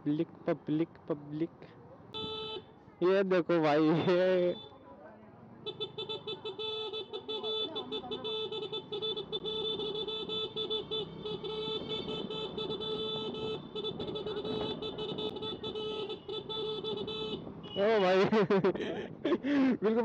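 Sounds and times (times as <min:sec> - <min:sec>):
scooter electronic horn: 0:02.2 - 0:02.7, 0:05.6 - 0:18.0.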